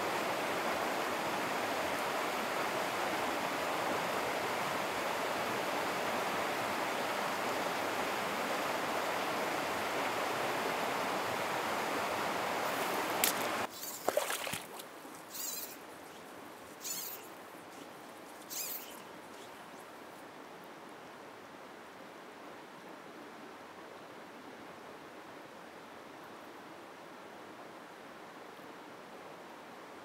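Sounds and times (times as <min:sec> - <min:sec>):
flowing river water: 0:00.0 - 0:30.0
fly line swishing: 0:12.7 - 0:19.6.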